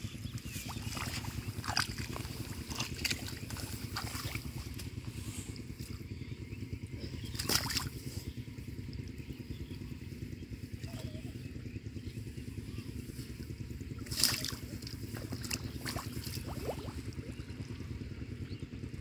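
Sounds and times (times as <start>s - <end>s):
small engine running: 0.0s - 19.0s
water sloshing and splashing: 0.1s - 6.2s, 6.8s - 9.3s, 13.1s - 18.0s.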